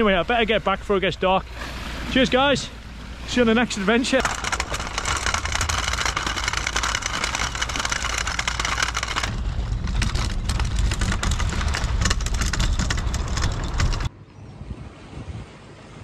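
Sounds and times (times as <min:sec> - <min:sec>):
trolley wheels rolling on concrete: 0:03.3 - 0:14.1.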